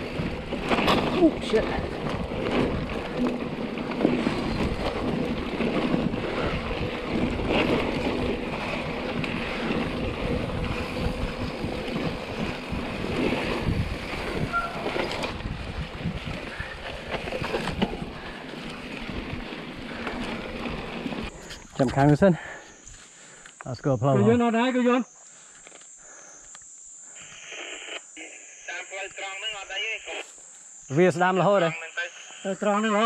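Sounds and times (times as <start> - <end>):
bike tyres on dirt track: 0.0 - 23.5
bike knocking over bumps: 0.1 - 6.5
wind on microphone: 4.2 - 17.9.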